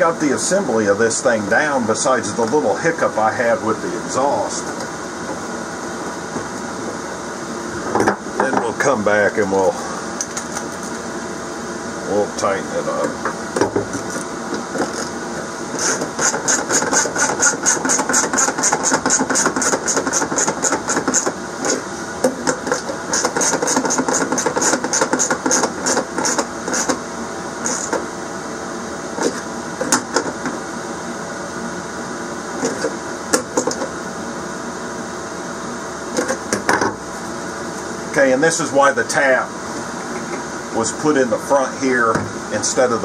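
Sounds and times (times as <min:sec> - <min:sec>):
knocks of tools and parts: 0:13.2 - 0:14.0, 0:36.2 - 0:37.0.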